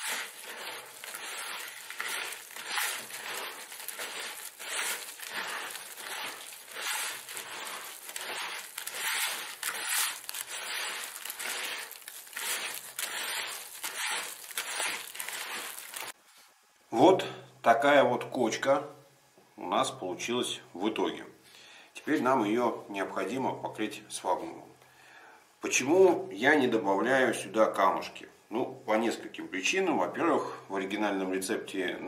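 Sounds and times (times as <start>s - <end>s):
hands kneading wet soil: 0.0s - 16.2s.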